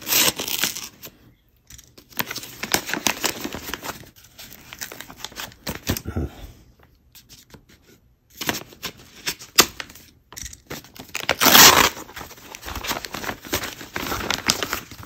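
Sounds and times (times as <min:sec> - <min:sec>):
paper crinkling and tearing: 0:00.0 - 0:01.1, 0:02.0 - 0:06.0, 0:10.7 - 0:15.0
paper rustling: 0:02.0 - 0:06.0, 0:10.7 - 0:15.0.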